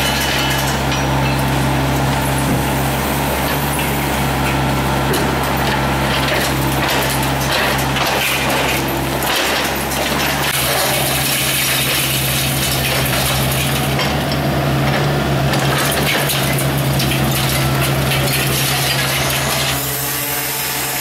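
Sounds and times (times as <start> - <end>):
concrete crunching: 0.0 - 20.3
excavator engine hum: 0.0 - 21.0
falling rubble: 3.4 - 20.1.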